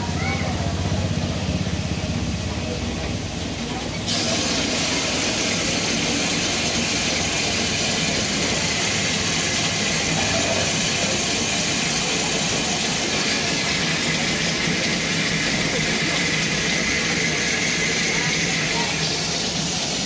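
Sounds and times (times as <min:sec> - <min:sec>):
locomotive steam hissing: 0:00.0 - 0:20.0.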